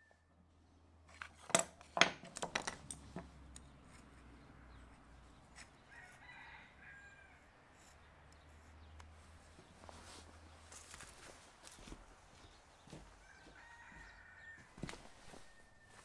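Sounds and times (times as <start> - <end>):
metal tools knocking on wooden bench: 1.5 - 3.3
distant rooster crowing: 5.8 - 7.9, 12.8 - 16.0.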